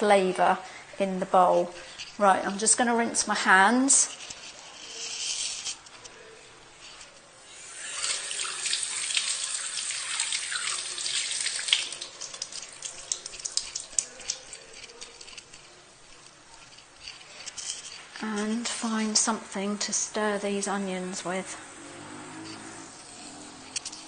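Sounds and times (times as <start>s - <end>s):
tap water running: 7.5s - 15.2s
water splashing and dripping: 7.9s - 15.2s.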